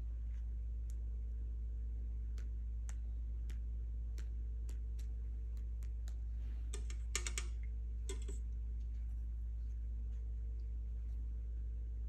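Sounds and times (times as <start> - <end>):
steady low hum: 0.0 - 12.0
rattle of clicks: 6.8 - 8.4.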